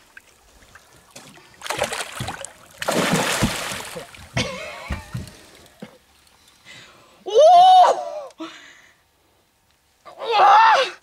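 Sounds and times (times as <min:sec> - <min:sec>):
fish splashing at surface: 0:01.6 - 0:04.1.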